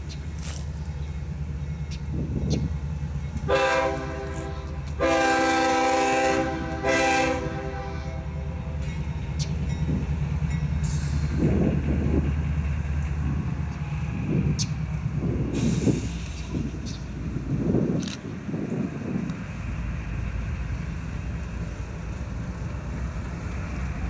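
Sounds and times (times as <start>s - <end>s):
diesel engine low rumble: 0.0s - 24.0s
locomotive air horn blasts: 3.5s - 8.6s.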